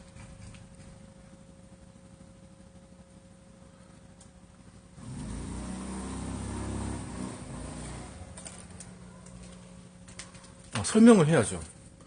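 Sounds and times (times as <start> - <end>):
motor vehicle passing: 5.0 - 10.0.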